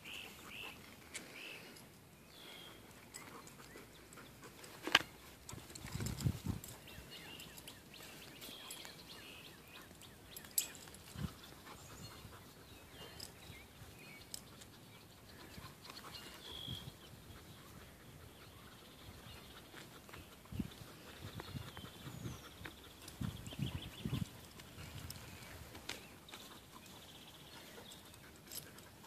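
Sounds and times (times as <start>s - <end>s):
bird chirps: 0.0s - 4.5s, 6.7s - 24.4s.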